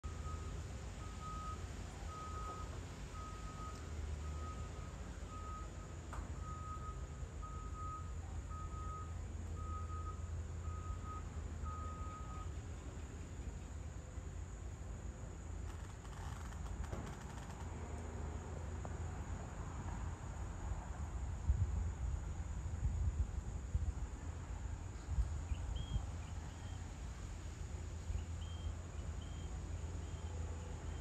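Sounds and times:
reversing alarm beeping: 0.0s - 12.6s.

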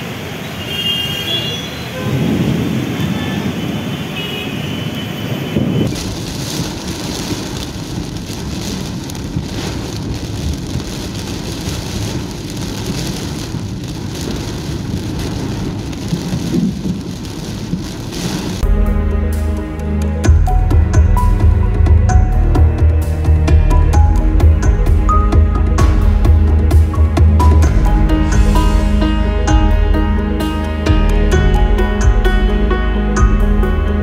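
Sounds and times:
heavy rain: 0.0s - 34.0s
rain beating on car windscreen: 2.0s - 18.6s.

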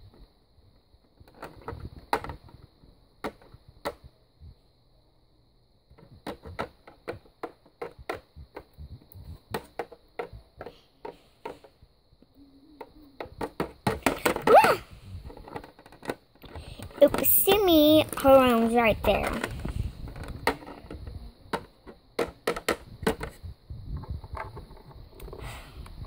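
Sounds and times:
plastic toys clattering: 1.0s - 4.0s, 5.9s - 11.8s, 12.8s - 23.4s.

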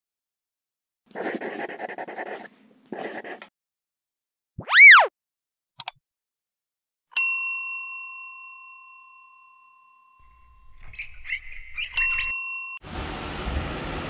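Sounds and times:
rising and falling tone: 4.6s - 5.1s.

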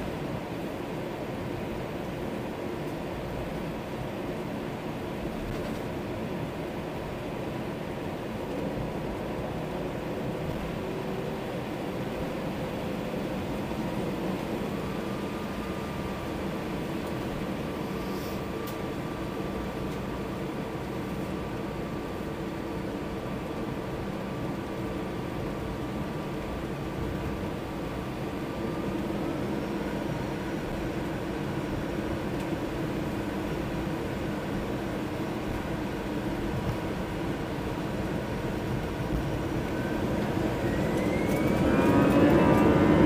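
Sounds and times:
jet engine cabin drone: 0.0s - 43.0s
thin engine whine: 38.8s - 43.0s.

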